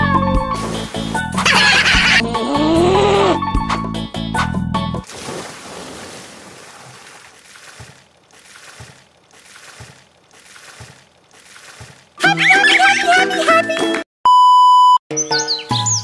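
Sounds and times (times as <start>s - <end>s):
water sloshing with low thuds: 0.4s - 2.1s, 3.6s - 12.2s
water splash: 0.5s - 2.2s, 5.0s - 12.3s.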